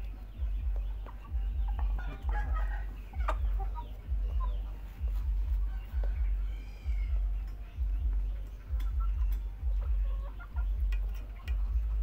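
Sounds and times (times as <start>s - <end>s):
chickens clucking: 0.0s - 12.0s
beaks tapping on metal: 10.7s - 12.0s.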